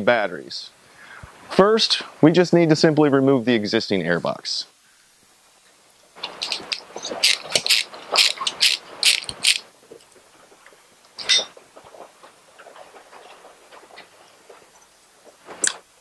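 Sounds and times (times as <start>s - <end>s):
ratcheting screwdriver clicking: 6.2s - 9.6s.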